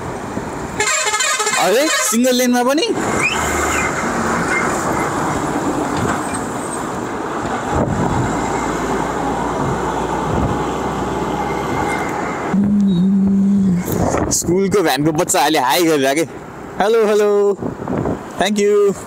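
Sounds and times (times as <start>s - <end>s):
bus engine humming: 0.0s - 18.2s
scooter road noise: 2.9s - 14.4s
wind rushing over microphone: 2.9s - 15.4s, 17.0s - 19.0s.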